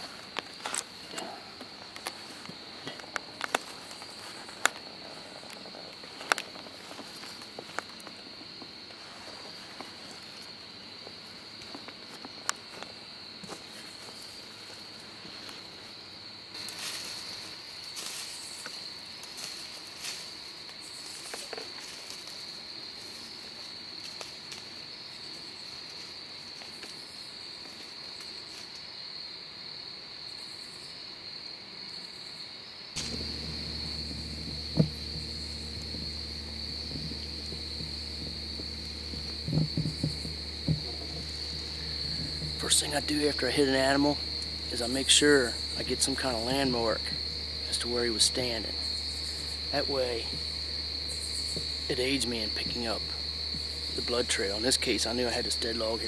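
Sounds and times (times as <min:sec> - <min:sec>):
crickets chirping: 0:00.0 - 0:56.0
rustling in dry leaves: 0:33.0 - 0:54.4
low electrical hum: 0:33.0 - 0:56.0.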